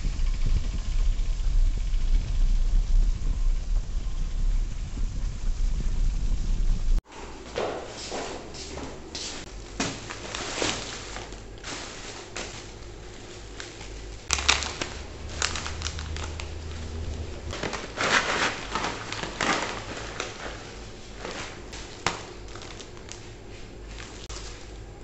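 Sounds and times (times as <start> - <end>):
plastic bags rustling: 7.0 - 25.0.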